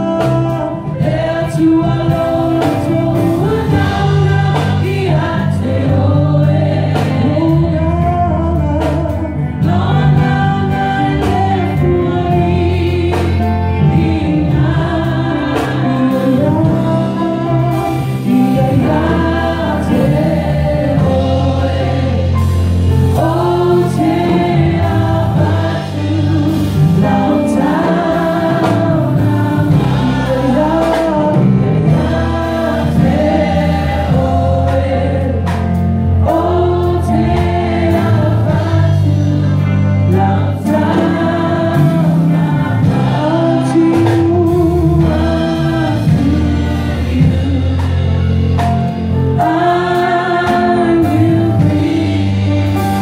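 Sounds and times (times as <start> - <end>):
choir singing sacred song: 9.7 - 47.8, 49.3 - 53.0.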